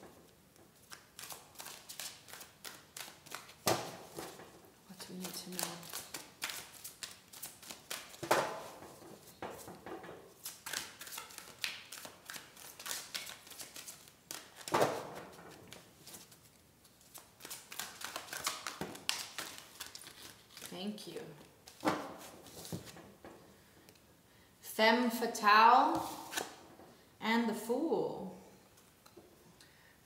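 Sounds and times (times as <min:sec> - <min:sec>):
cards being shuffled: 0:00.8 - 0:04.3, 0:05.0 - 0:08.8, 0:10.4 - 0:20.8, 0:25.9 - 0:26.6.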